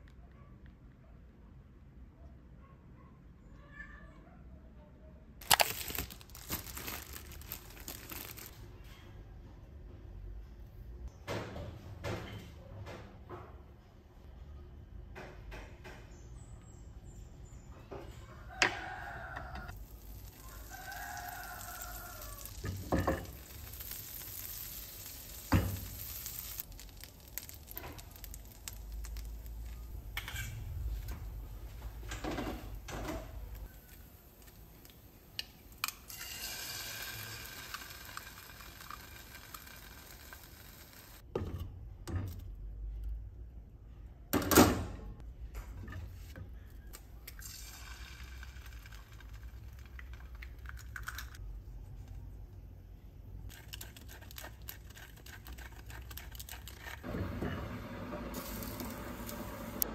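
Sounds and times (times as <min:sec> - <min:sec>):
bread sizzling in a frying pan: 0:19.7 - 0:30.5, 0:33.6 - 0:41.2, 0:47.4 - 0:50.2, 0:57.0 - 0:59.9.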